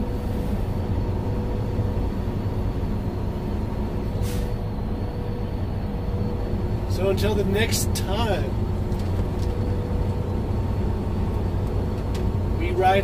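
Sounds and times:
truck engine and tyres drone: 0.0 - 13.0.

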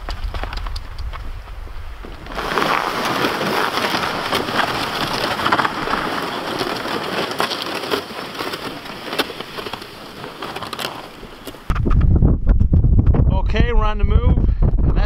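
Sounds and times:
snow crunching underfoot: 0.0 - 11.7.

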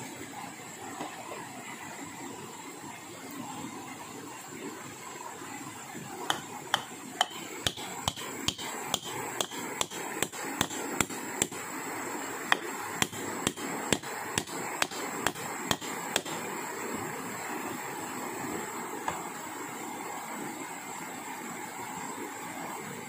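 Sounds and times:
steady background hiss: 0.0 - 23.0
hand tool striking wood: 6.3 - 11.6, 12.5 - 16.4.

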